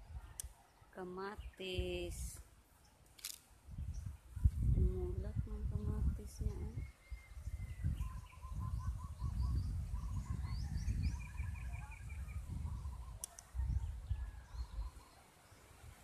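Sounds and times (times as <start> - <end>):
small birds chirping and trilling: 3.6 - 16.0
low rumble on microphone: 3.7 - 15.0
sharp click: 13.2 - 13.5.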